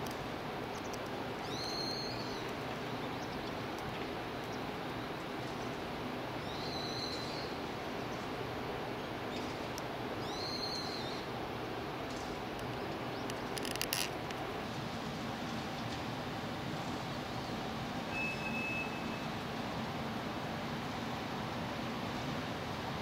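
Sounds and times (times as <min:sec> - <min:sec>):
steady background noise: 0:00.0 - 0:23.0.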